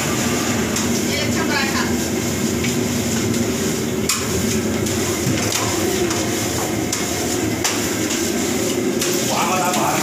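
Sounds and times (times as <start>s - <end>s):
kitchen ventilation roar: 0.0s - 10.0s.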